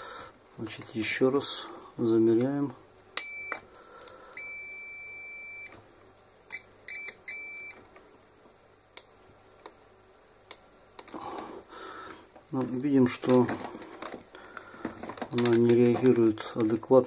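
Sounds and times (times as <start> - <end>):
multimeter buzzer beeping: 3.2 - 3.7, 4.4 - 5.8, 6.5 - 7.8.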